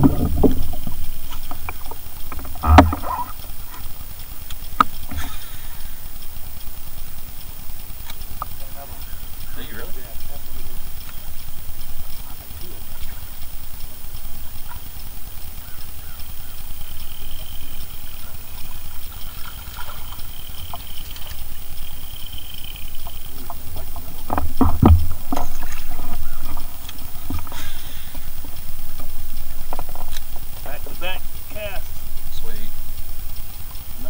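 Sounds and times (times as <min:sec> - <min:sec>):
steady low rumble: 0:00.0 - 0:34.0
knocks against boat: 0:24.4 - 0:25.2.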